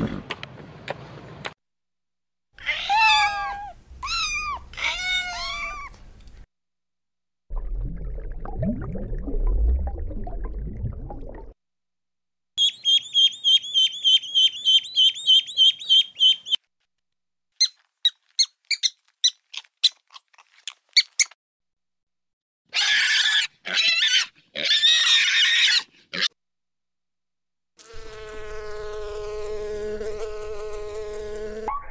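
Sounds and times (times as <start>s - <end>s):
young pigs squealing: 22.7s - 26.3s.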